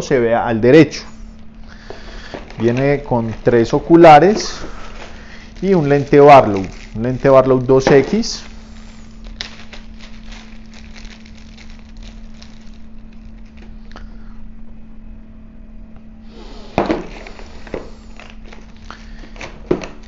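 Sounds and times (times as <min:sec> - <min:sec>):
steady low hum: 0:00.0 - 0:20.0
packaging crinkling: 0:01.3 - 0:14.1, 0:16.7 - 0:20.0
rustling in cardboard box: 0:01.8 - 0:13.8.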